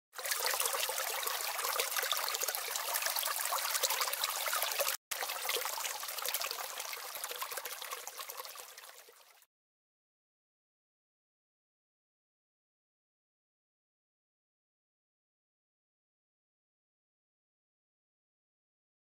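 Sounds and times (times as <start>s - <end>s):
water trickling and dripping: 0.2s - 9.5s.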